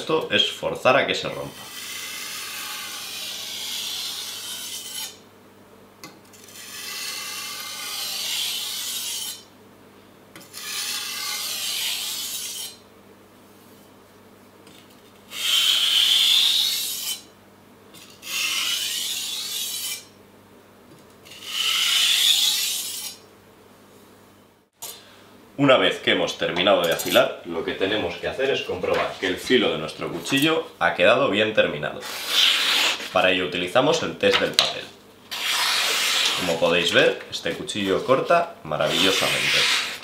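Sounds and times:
knife scraping on whetstone: 1.5 - 5.2, 6.3 - 9.5, 10.4 - 12.8, 15.4 - 17.3, 18.0 - 20.1, 35.3 - 36.6, 38.8 - 40.0.

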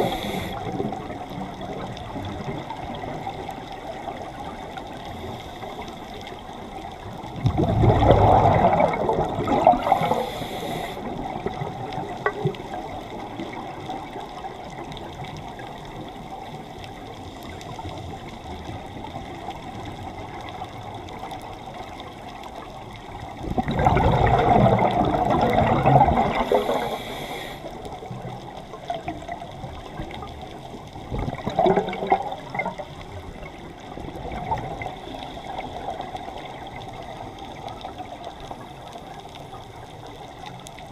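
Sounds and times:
underwater hiss: 0.0 - 1.1, 4.8 - 6.8, 7.8 - 12.2, 23.9 - 28.2, 34.1 - 37.3
diver's breath bubbling underwater: 7.4 - 11.2, 23.5 - 27.5.

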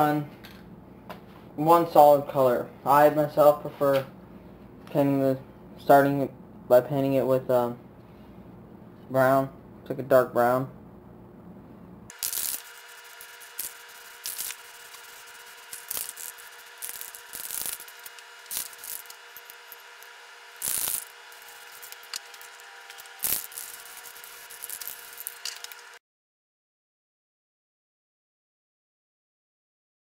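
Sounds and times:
spray paint can hissing: 12.1 - 26.0.

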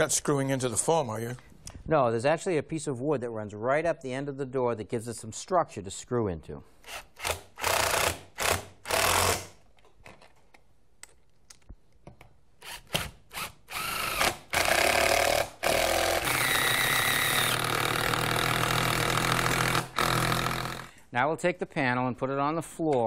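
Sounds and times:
cordless drill driving screws: 6.8 - 9.5, 12.6 - 20.9.

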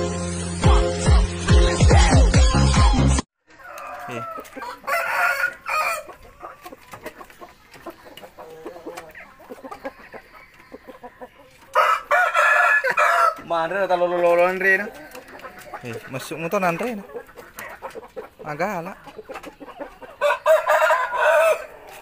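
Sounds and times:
rooster crowing: 3.5 - 6.1, 11.7 - 13.4, 20.2 - 22.0.

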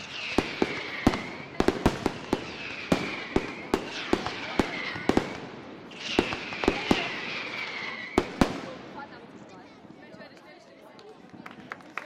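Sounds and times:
firework whistles falling in pitch: 0.0 - 8.4.

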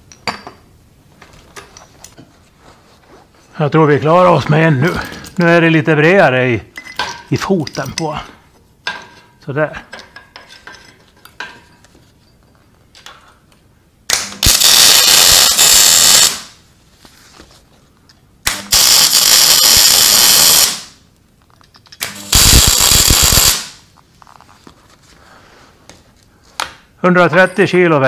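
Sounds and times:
welder arc crackling: 14.1 - 16.6, 18.5 - 21.0, 22.0 - 23.8.

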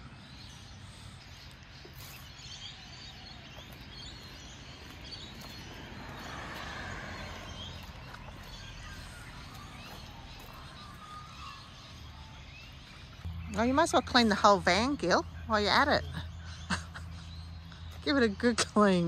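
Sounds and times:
faint bird chirps: 7.2 - 18.8.

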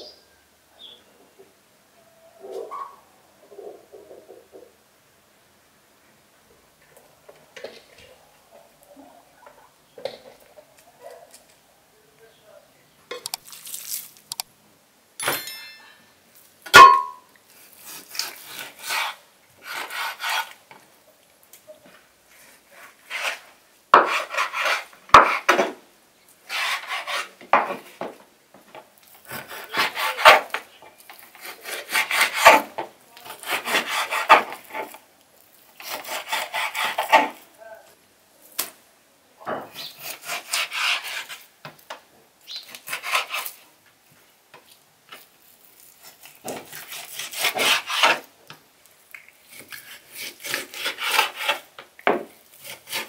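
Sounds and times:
knife sawing through meat: 17.6 - 20.6, 26.5 - 27.3, 29.2 - 30.5, 31.4 - 32.7, 33.3 - 34.9, 35.8 - 37.4, 39.8 - 41.4, 42.8 - 43.6, 46.0 - 48.2, 49.5 - 51.7, 52.5 - 53.0.

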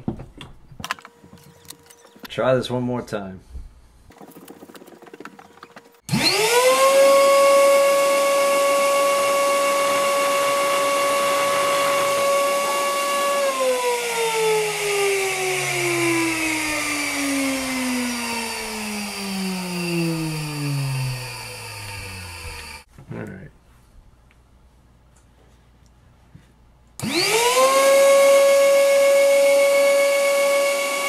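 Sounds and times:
electric grinder whine: 6.0 - 22.9, 27.0 - 31.0.

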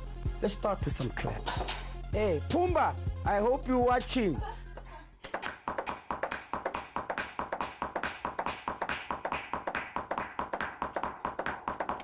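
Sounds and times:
clap sounds: 5.2 - 12.0.

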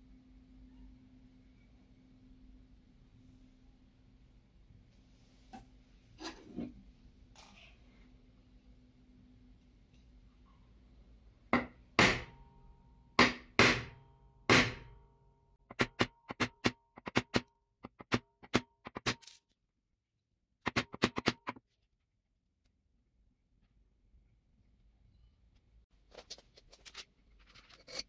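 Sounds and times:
sharp ringing knocks: 11.6 - 15.0.

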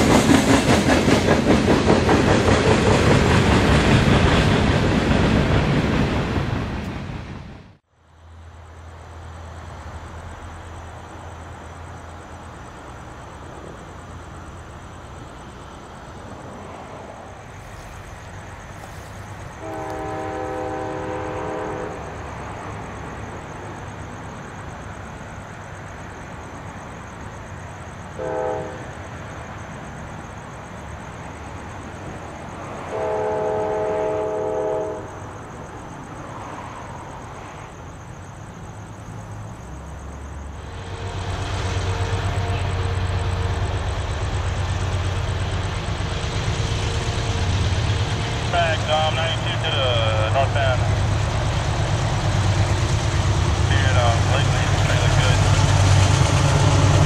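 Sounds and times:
locomotive engines rumbling: 0.0 - 57.0
diesel locomotive horn: 19.5 - 22.3, 28.1 - 29.0, 32.8 - 35.2, 40.6 - 44.6.

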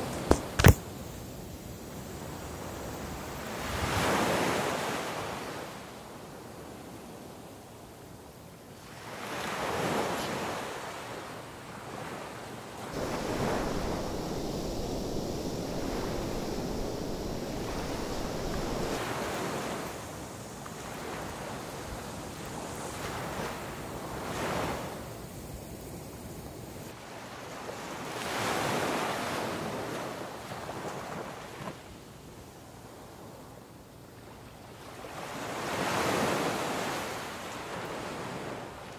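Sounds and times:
sea surf washing onto beach: 12.8 - 26.4
wind buffeting microphone: 13.0 - 19.1.

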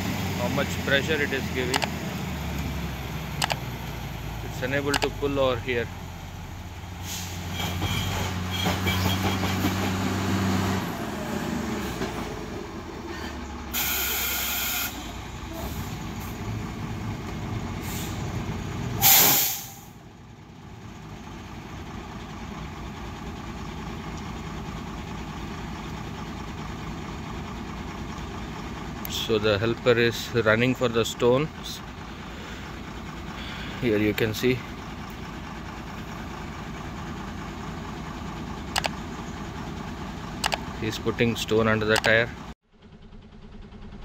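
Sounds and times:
engine idling: 0.0 - 9.6, 12.1 - 44.0
truck diesel engine labouring: 0.0 - 44.0
air brakes hissing: 7.0 - 9.7, 13.1 - 16.4, 17.8 - 18.3, 19.0 - 20.0, 32.1 - 33.8.

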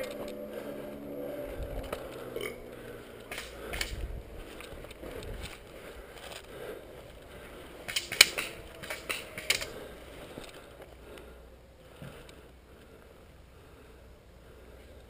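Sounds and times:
rifle shots: 3.3 - 4.0, 7.9 - 9.8.

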